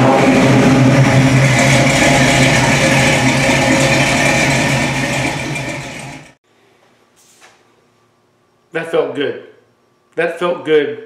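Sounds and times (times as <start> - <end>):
car engine running: 0.0 - 6.4.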